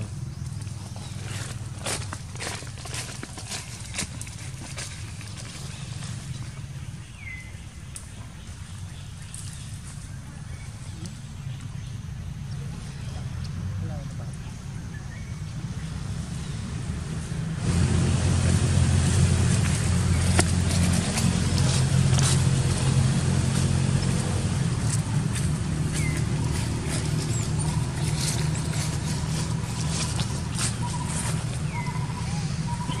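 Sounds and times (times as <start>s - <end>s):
engine running: 12.4s - 33.0s.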